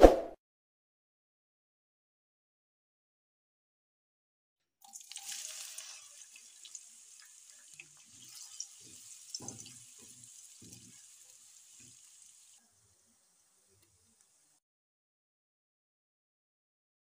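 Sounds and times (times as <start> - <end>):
onion sizzling in hot oil: 4.8 - 14.6
spatula scraping a pan: 5.4 - 12.6.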